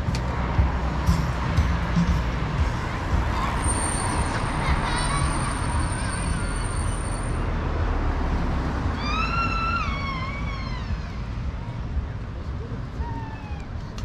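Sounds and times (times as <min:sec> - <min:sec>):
street traffic rumbling: 0:00.0 - 0:14.0.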